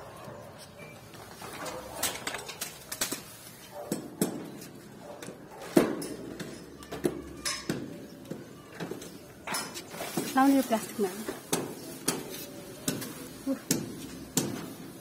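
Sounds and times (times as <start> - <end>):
leaves rustling: 1.0 - 3.8, 9.7 - 15.0.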